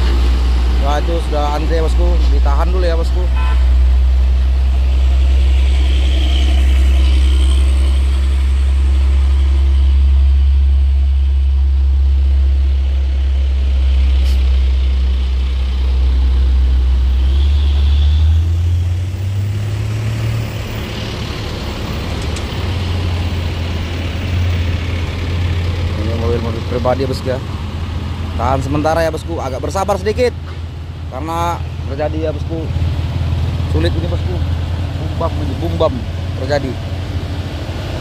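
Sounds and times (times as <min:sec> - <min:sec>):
large vehicle engine running: 0:00.0 - 0:38.0.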